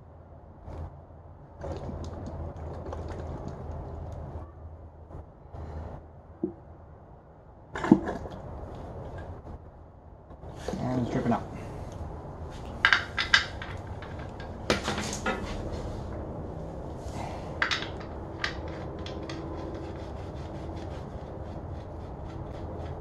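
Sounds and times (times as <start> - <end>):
sharp metal clicks and knocks: 12.7 - 15.4, 17.6 - 19.6.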